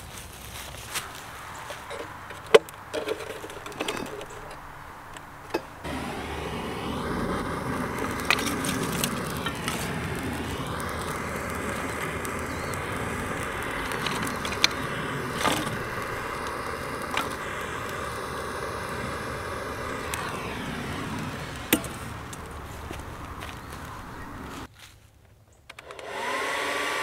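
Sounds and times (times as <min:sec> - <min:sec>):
kindling cracking: 0:00.1 - 0:24.7
gas torch hissing: 0:05.5 - 0:24.7.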